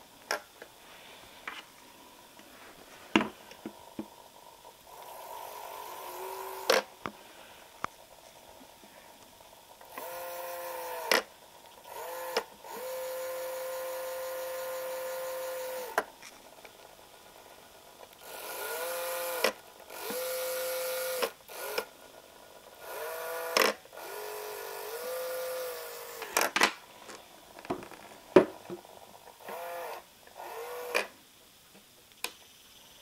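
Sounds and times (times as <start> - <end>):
gear motor whining: 11.8 - 16.0, 18.2 - 21.9, 22.8 - 26.5.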